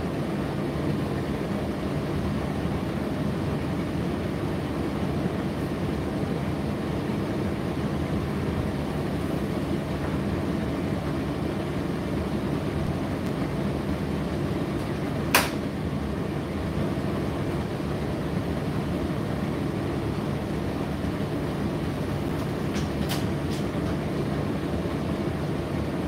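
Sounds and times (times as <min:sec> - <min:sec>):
tumble dryer humming: 0:00.0 - 0:26.0
sharp click: 0:15.3 - 0:15.6.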